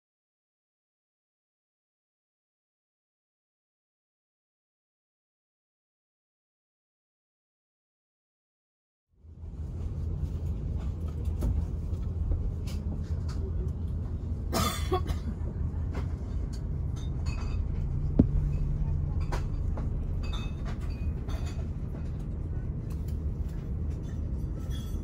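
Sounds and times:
aircraft cabin rumble: 9.2 - 25.0.

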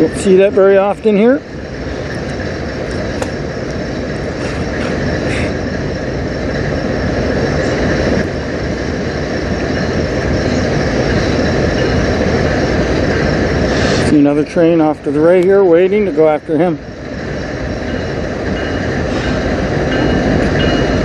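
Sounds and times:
freight train rolling past: 0.0 - 21.0.

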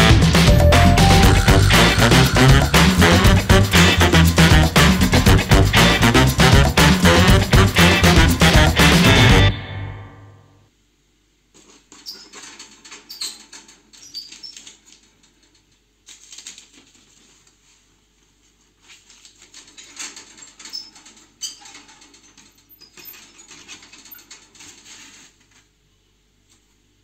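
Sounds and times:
kitten scrabbling in crumpled paper: 11.5 - 22.5, 23.1 - 25.8.

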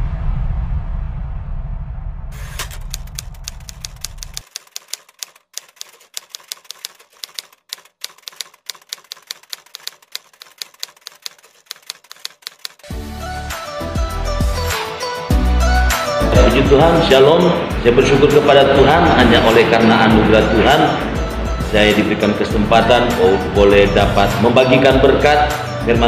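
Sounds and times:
low rumble: 0.0 - 4.3
typewriter keys clacking: 2.5 - 12.9
music: 12.8 - 26.0.

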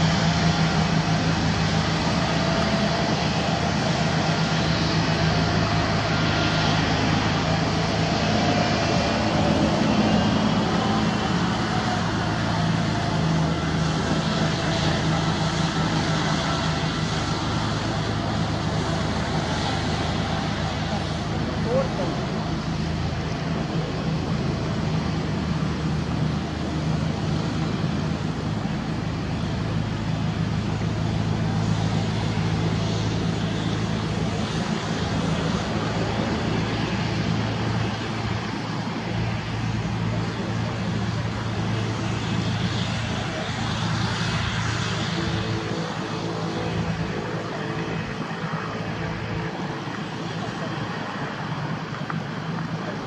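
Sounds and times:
jet engines running: 0.0 - 53.0.

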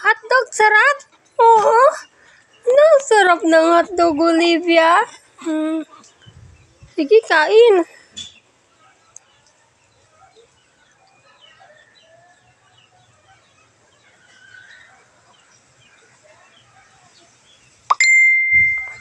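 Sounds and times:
loud ringing tone: 17.9 - 19.0.

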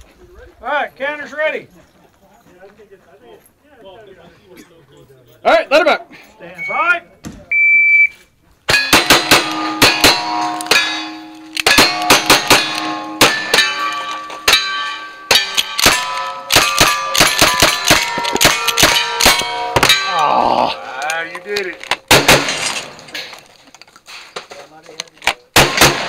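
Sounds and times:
steel plate ringing: 8.7 - 23.3
rapid gunfire: 22.1 - 22.7, 25.6 - 26.0.

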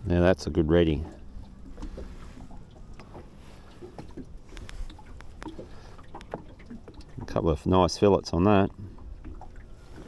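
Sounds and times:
water rumble around boat: 0.0 - 10.0
wind: 0.0 - 10.0
faint clicks and taps: 2.7 - 7.4.

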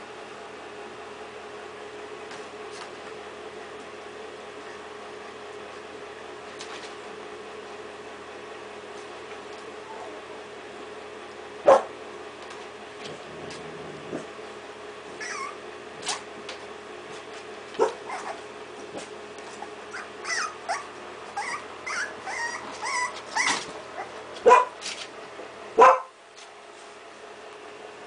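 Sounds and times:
puppies yipping and whimpering: 15.1 - 16.3, 17.8 - 18.5, 19.5 - 24.3
puppy yelps: 15.2 - 16.3, 17.8 - 18.4, 19.6 - 24.7.

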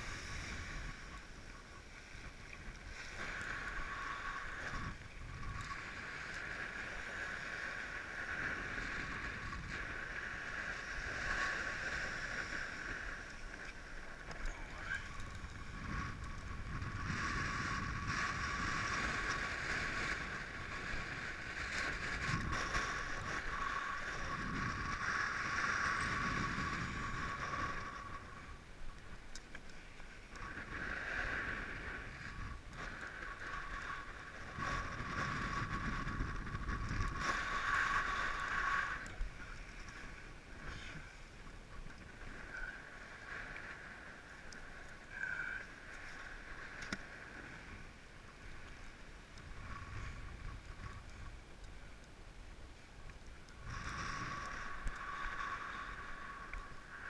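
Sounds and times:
wind buffeting microphone: 0.0 - 29.0, 30.5 - 41.0, 49.2 - 51.6.

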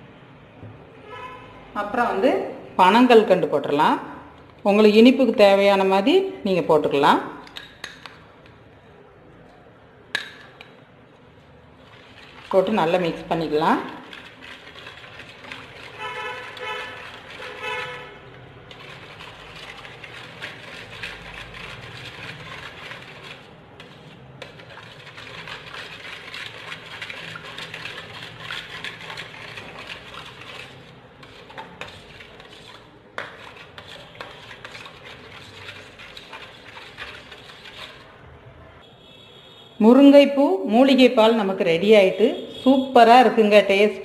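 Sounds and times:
spoon scraping steel bowl: 11.7 - 38.2.

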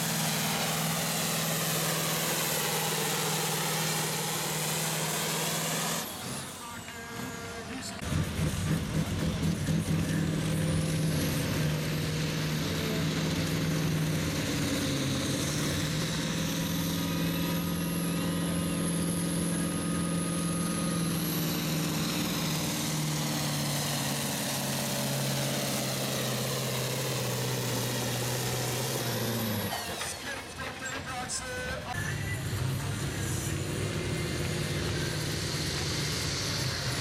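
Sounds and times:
tractor diesel engine under load: 0.0 - 37.0.

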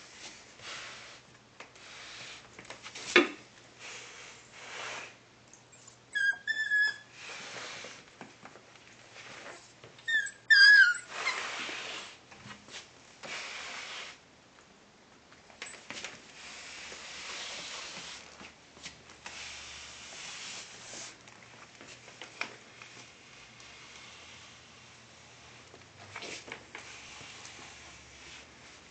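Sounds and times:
puppy yelp: 5.8 - 7.1, 10.1 - 11.4.

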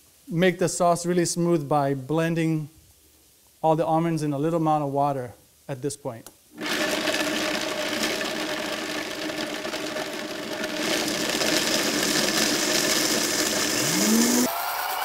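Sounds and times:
blender motor running: 6.6 - 15.0
high motor whine: 10.6 - 14.5.

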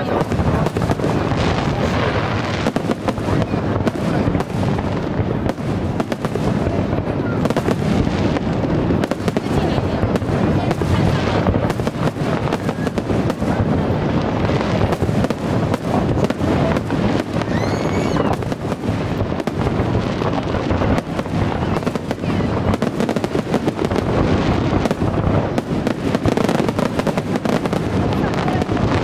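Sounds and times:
fireworks bangs and crackling: 0.0 - 29.0.

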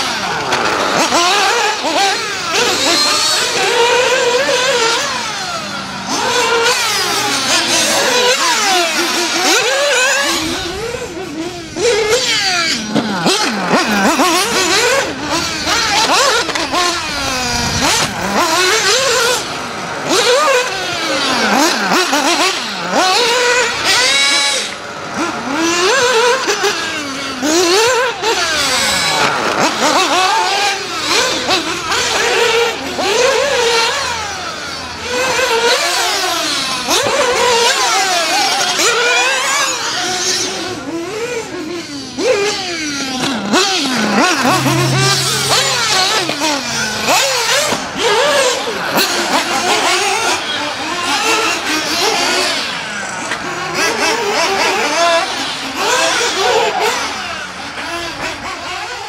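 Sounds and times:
small engine revving high-pitched: 0.0 - 59.0.

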